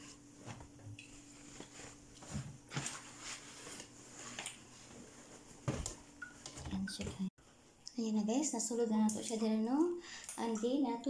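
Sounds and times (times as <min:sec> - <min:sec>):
laundry rustling and knocking: 0:00.4 - 0:07.3.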